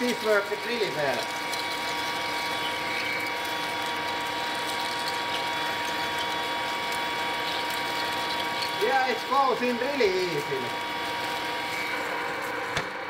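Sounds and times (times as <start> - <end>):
drill cutting steel: 0.0 - 12.7
lathe machine whine: 0.0 - 13.0.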